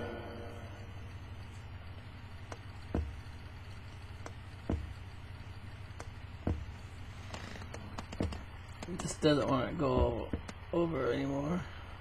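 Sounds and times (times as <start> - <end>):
low hum: 0.0 - 12.0
record stylus thumping: 2.5 - 3.3.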